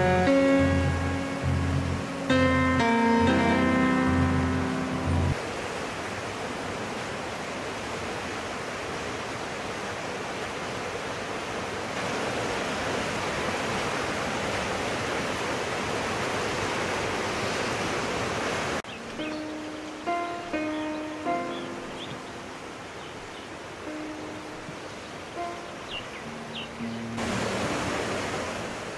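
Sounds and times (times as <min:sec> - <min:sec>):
river rapid rushing water: 0:00.0 - 0:28.9.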